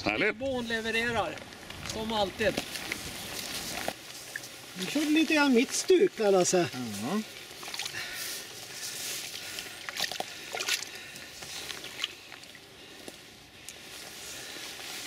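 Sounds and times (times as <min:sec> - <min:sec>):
water sloshing and splashing: 0:07.2 - 0:11.0, 0:11.6 - 0:12.6.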